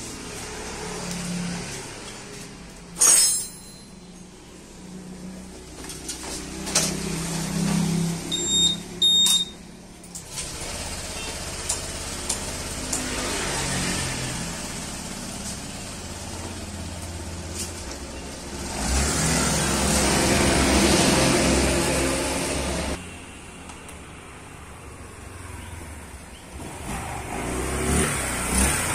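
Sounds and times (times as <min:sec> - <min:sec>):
scooter engine idling and revving: 0:00.0 - 0:03.0, 0:04.2 - 0:28.9
short electronic beeps: 0:08.3 - 0:09.6.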